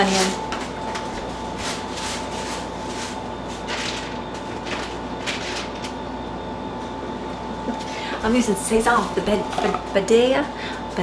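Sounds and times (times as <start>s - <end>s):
steady hum with high whine: 0.0s - 11.0s
jars knocking and rustling: 9.3s - 9.9s.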